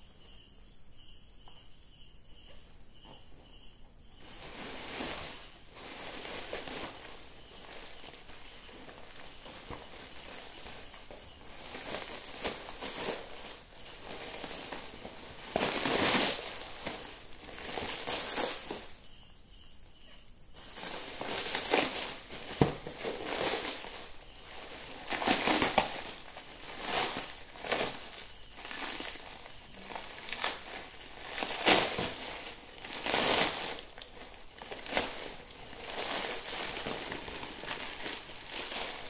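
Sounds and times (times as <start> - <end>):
plastic wrapping crinkling: 4.2 - 19.0, 20.6 - 39.0.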